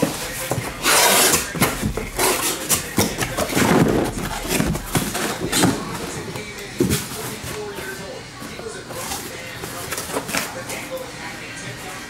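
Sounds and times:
cardboard scraping: 0:00.0 - 0:07.9.

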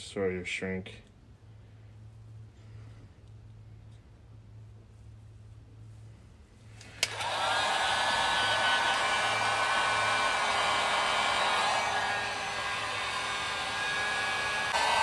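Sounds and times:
heat gun fan whining: 0:06.7 - 0:15.0
heat gun switch click: 0:06.8 - 0:07.3.

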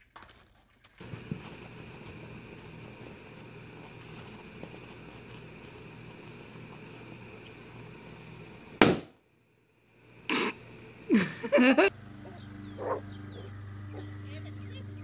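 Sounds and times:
balloon bursting bang: 0:08.8 - 0:09.1.

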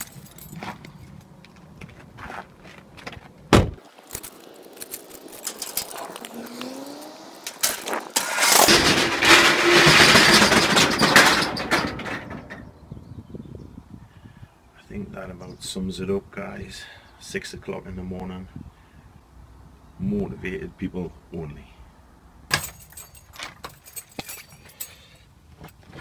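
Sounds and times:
keys jangling: 0:00.0 - 0:00.8, 0:04.0 - 0:06.6, 0:22.5 - 0:25.2
metal roller shutter rattling: 0:04.1 - 0:06.6, 0:07.4 - 0:12.8.

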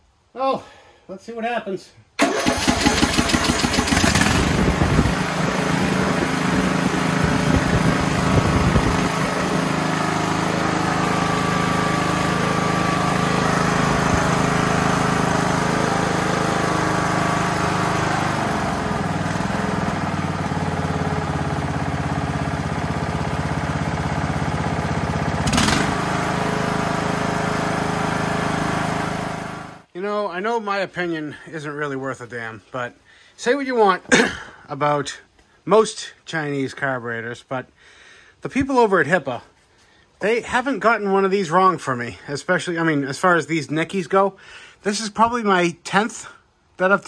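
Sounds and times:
lawn tractor engine running: 0:02.2 - 0:29.9.

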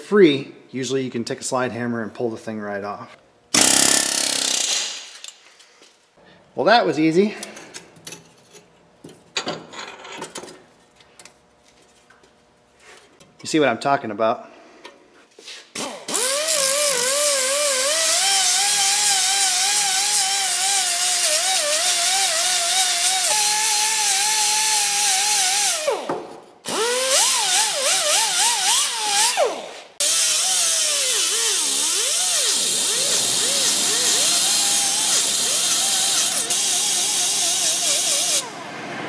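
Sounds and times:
air die grinder whining: 0:03.6 - 0:04.8, 0:16.1 - 0:26.1, 0:26.7 - 0:38.6.

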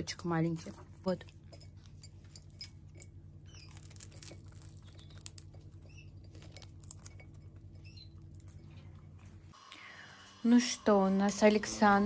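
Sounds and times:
faint high squeaks: 0:03.4 - 0:08.9.

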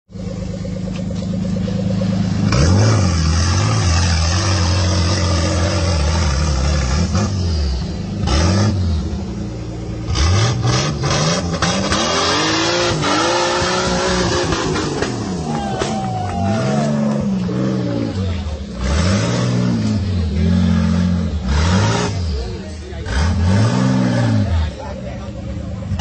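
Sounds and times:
engine revving hard: 0:02.1 - 0:09.4, 0:10.0 - 0:25.0.

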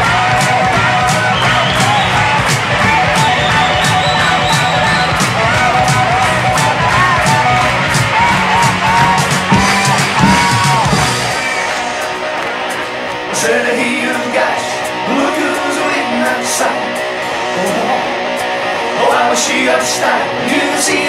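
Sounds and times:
bass guitar: 0:00.0 - 0:21.0
electric guitar: 0:00.0 - 0:21.0
rock band playing: 0:00.0 - 0:21.0.

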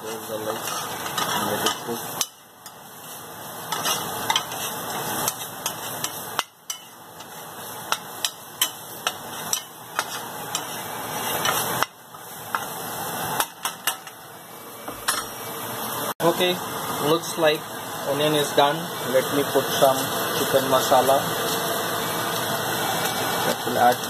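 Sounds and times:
spatula scraping a frying pan: 0:00.0 - 0:12.7
onions sizzling: 0:00.0 - 0:24.0.

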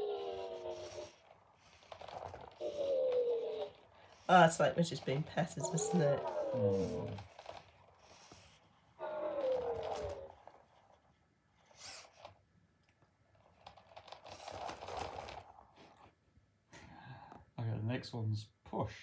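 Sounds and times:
robot pet electronic coo: 0:00.0 - 0:10.6.

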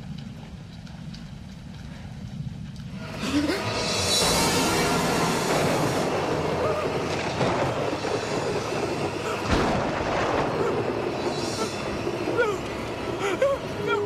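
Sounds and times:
dense rumbling roar: 0:03.0 - 0:13.8
heavy boom: 0:03.8 - 0:11.6.

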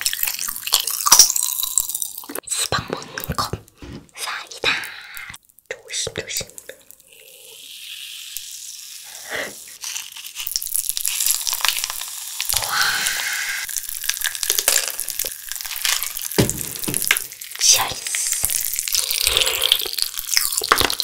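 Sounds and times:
soda pouring into cups: 0:00.0 - 0:02.4, 0:06.8 - 0:21.0
soda fizzing and crackling: 0:00.0 - 0:02.5, 0:05.3 - 0:21.0.

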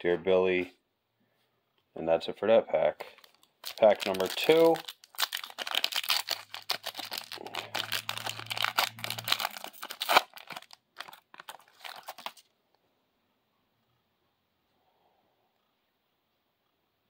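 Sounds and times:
foil wrapper crinkling and tearing: 0:03.0 - 0:12.5.

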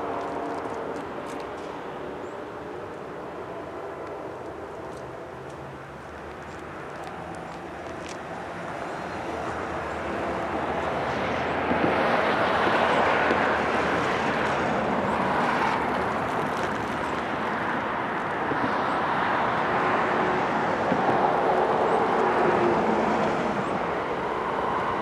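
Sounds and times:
train rumble: 0:00.0 - 0:18.8
diesel locomotives approaching: 0:00.0 - 0:25.0.

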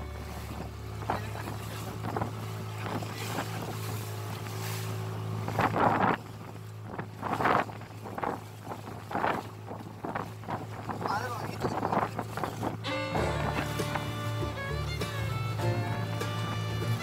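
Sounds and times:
waves splashing against hull: 0:00.0 - 0:17.0
wind buffeting microphone: 0:00.2 - 0:17.0
steady low drone: 0:12.8 - 0:17.0.

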